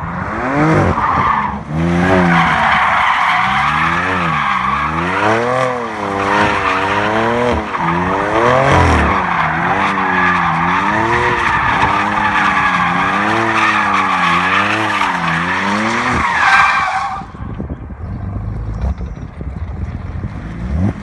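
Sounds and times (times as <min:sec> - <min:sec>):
car engine revving high: 0:00.2 - 0:16.4.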